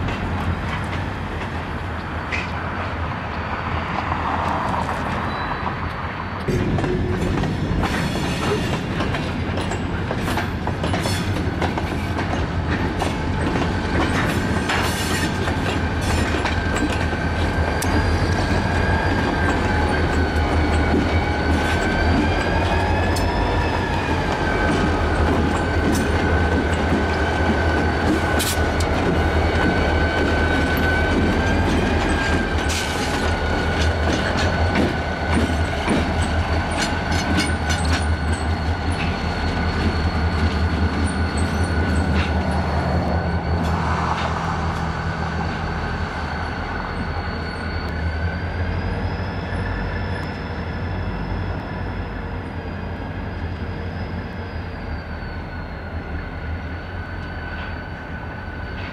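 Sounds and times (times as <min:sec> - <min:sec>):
diesel locomotive engine rumble: 0:00.0 - 0:58.9
wheels clicking over rail joints: 0:06.4 - 0:42.8.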